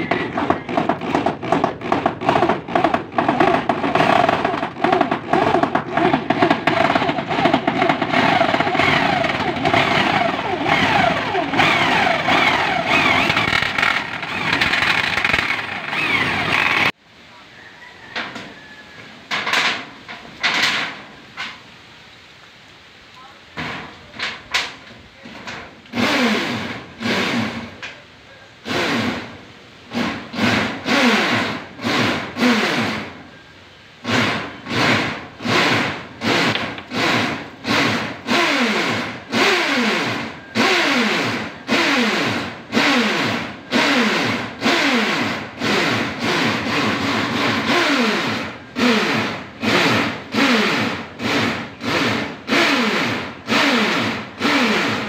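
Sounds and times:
power drill short bursts: 6.8 - 16.9, 25.9 - 27.7, 28.6 - 29.3, 29.9 - 33.2, 34.0 - 55.0.

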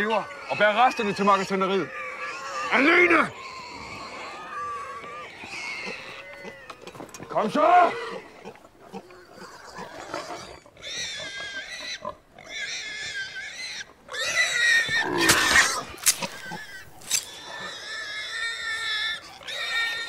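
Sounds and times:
horses squealing: 0.0 - 20.0.

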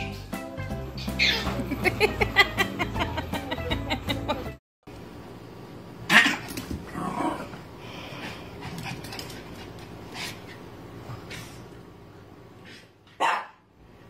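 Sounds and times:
music: 0.0 - 4.6
dog barking: 13.2 - 13.6.

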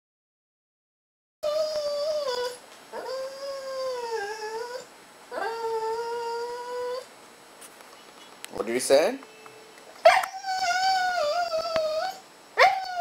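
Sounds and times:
dog whining: 1.4 - 7.1, 10.0 - 13.0.

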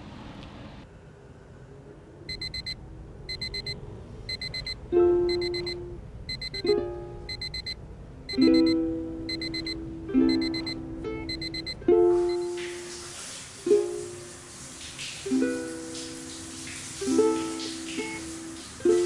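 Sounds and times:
alarm clock beeping: 2.3 - 12.6
light plucked music: 4.8 - 7.4, 8.3 - 12.9, 15.3 - 19.0.

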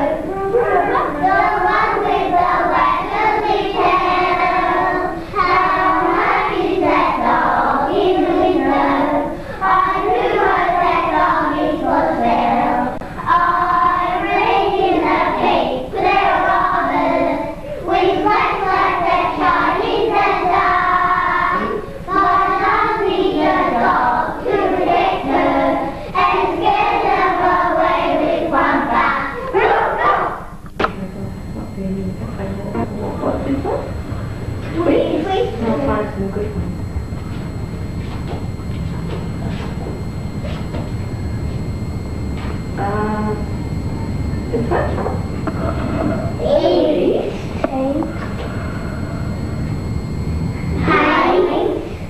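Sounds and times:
young children singing: 0.0 - 30.5, 50.8 - 52.0
steady low hum: 0.0 - 52.0.

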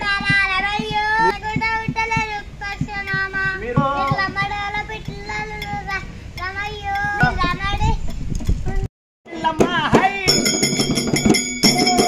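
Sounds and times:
girl singing devotional song: 0.0 - 9.5.

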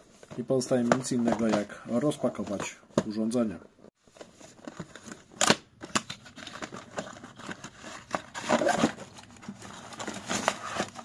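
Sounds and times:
cardboard box rustling and scraping: 6.3 - 11.0.

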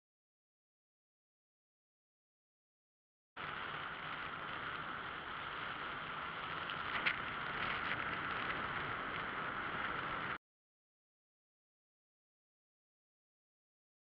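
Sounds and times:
wind and road noise: 3.4 - 10.4.

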